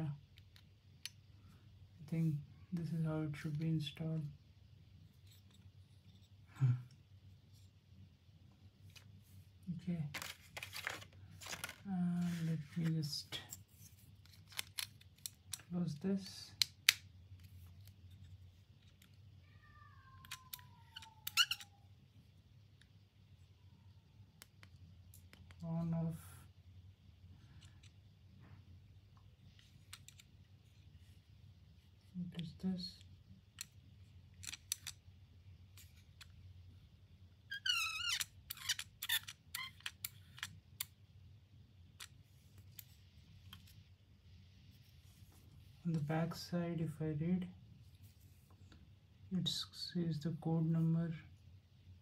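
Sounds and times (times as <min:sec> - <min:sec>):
caliper jaw squeaking: 0:20.2 - 0:21.8, 0:37.5 - 0:40.5.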